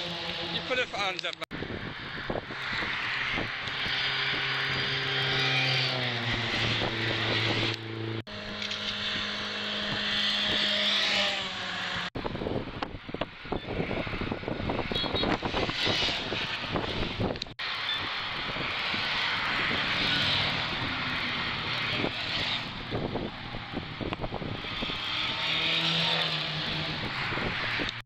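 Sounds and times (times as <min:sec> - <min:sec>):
motorway traffic passing: 0:00.0 - 0:28.0
wind buffeting: 0:00.4 - 0:28.0
vehicle engine passing by: 0:01.8 - 0:12.1, 0:18.2 - 0:28.0.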